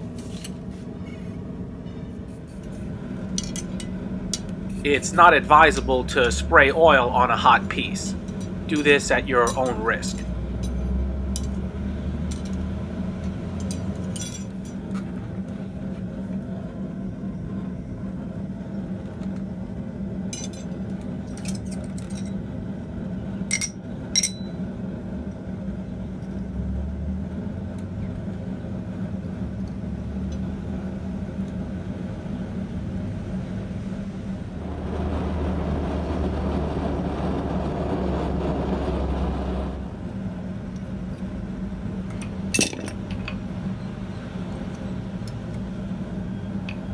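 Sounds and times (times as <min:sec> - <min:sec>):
steady low hum: 0:00.0 - 0:46.9
tongs clinking on anvil: 0:23.5 - 0:24.6, 0:42.6 - 0:43.4
loud rushing noise: 0:33.8 - 0:40.6.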